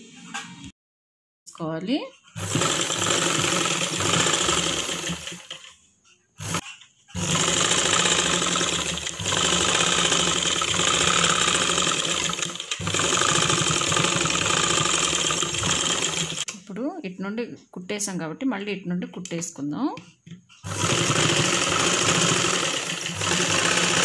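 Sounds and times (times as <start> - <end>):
sewing machine stitching: 2.4 - 5.8, 6.4 - 16.5, 20.6 - 24.0.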